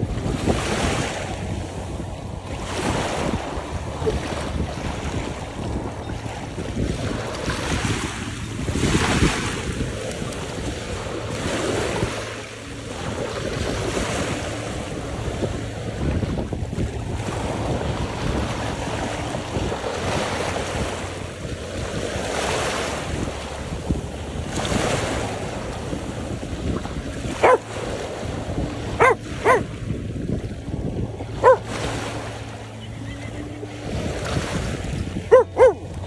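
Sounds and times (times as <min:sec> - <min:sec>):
waves washing over rocks: 0:00.0 - 0:36.0
wind buffeting microphone: 0:00.0 - 0:36.0
dog barking: 0:27.4 - 0:27.7, 0:29.0 - 0:29.7, 0:31.3 - 0:31.7, 0:35.3 - 0:35.9.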